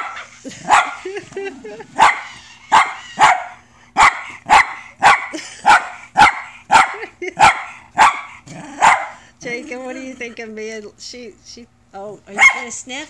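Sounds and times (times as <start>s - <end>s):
dog barking: 0.0s - 1.1s, 1.9s - 9.2s, 12.3s - 12.8s.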